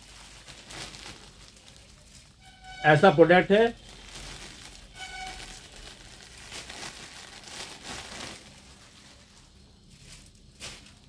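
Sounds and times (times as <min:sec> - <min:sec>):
plastic bag crinkling: 0:00.0 - 0:11.0.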